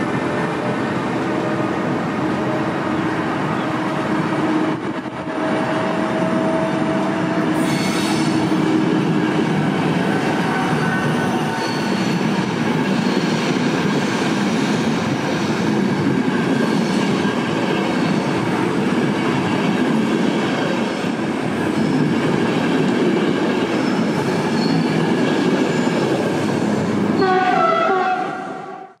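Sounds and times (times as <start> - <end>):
train wheels rumbling and clattering: 0.0 - 27.2.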